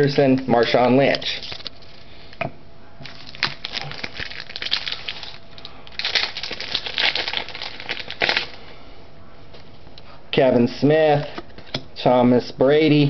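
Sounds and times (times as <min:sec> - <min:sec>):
plastic wrapper crinkling: 0:00.3 - 0:02.1, 0:03.0 - 0:08.7.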